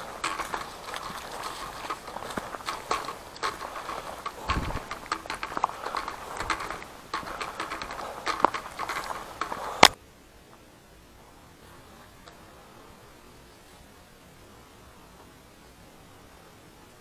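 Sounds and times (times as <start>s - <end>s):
footsteps crunching on leaves: 0.0s - 10.0s
faint hiss: 0.0s - 17.0s.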